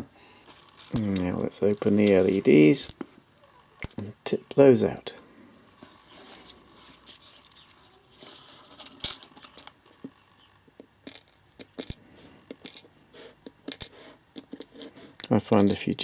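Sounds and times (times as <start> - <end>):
tape tearing rustle: 0.5 - 4.1, 5.8 - 10.0
small parts clicking on cardboard: 8.9 - 15.9.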